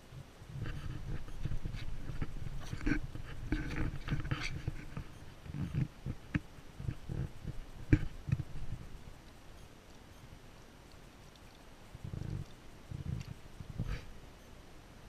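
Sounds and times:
rustling: 0.0 - 14.2.

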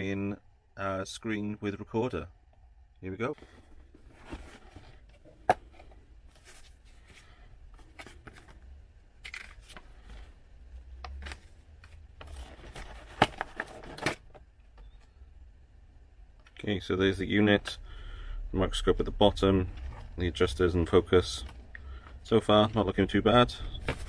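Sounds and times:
cardboard and paper rustling: 3.4 - 8.6, 11.1 - 14.4, 21.2 - 24.0.

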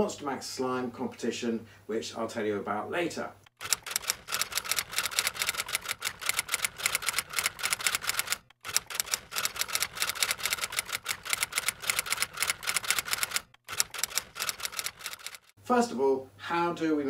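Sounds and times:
keyboard typing clicks: 3.5 - 15.5.

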